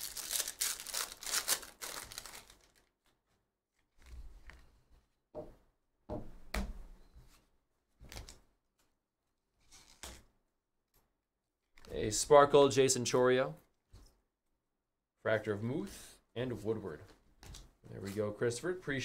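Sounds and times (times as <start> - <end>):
foil pack tearing and crinkling: 0.0 - 2.9
cards rustling: 0.0 - 3.2.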